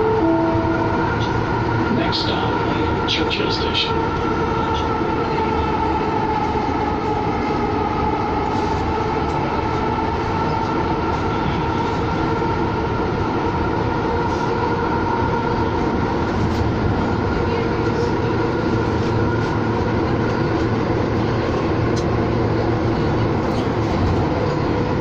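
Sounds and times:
steady high tones: 0:00.0 - 0:02.0
rail car rumble and hum: 0:00.0 - 0:25.0.

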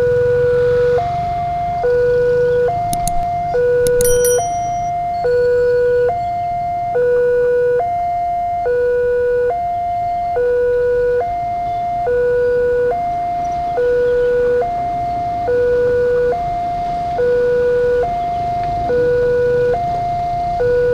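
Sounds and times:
level crossing two-tone alarm: 0:01.9 - 0:06.1, 0:10.4 - 0:20.9.

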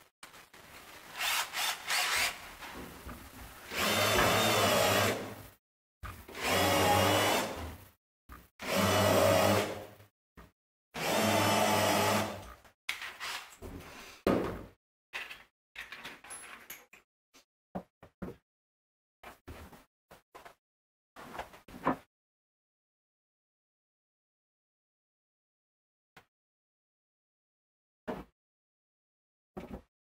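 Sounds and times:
cordless drill driving screws: 0:01.2 - 0:02.4, 0:03.7 - 0:05.3, 0:06.4 - 0:07.7, 0:11.0 - 0:12.4, 0:13.0 - 0:13.6.

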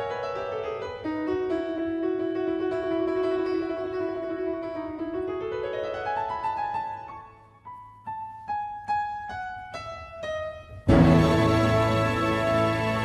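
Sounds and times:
piano music: 0:00.0 - 0:13.0
fuller passage of music: 0:10.5 - 0:13.0.

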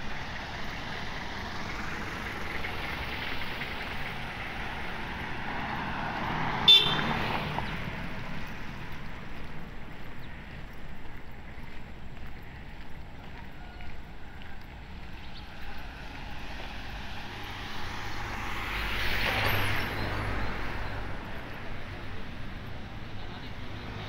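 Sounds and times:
road traffic passing: 0:00.0 - 0:24.0
car horn toot: 0:06.6 - 0:07.2.

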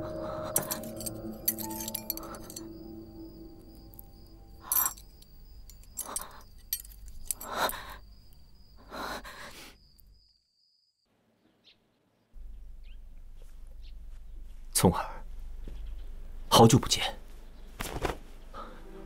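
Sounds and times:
faint high steady tone: 0:00.0 - 0:06.9.

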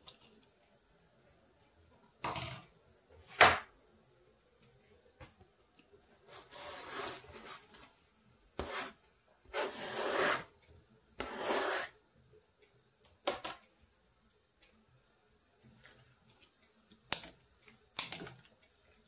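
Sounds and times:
scraping on plastic cutting board: 0:06.3 - 0:07.8, 0:08.6 - 0:10.5, 0:11.2 - 0:11.9.

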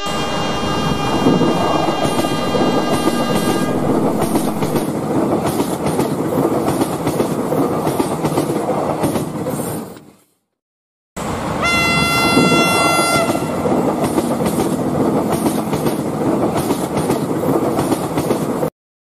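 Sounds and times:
train horn: 0:00.0 - 0:04.9, 0:11.6 - 0:13.7
train rumbling past: 0:00.0 - 0:09.5, 0:11.2 - 0:18.6.

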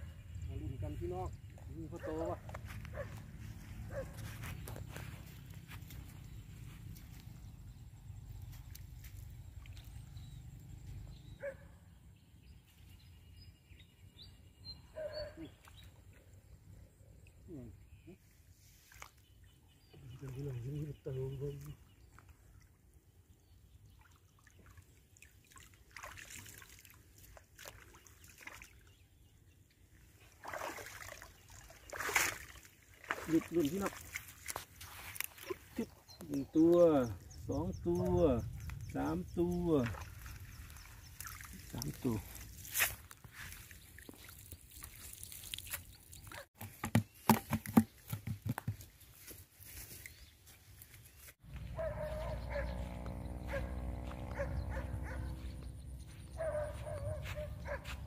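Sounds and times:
water sloshing and trickling: 0:01.5 - 0:11.1, 0:18.6 - 0:20.7, 0:21.4 - 0:37.4, 0:38.0 - 0:52.6
water splashing: 0:24.0 - 0:28.9, 0:30.2 - 0:36.0, 0:38.9 - 0:46.5
sharp taps and thumps: 0:46.6 - 0:48.8.

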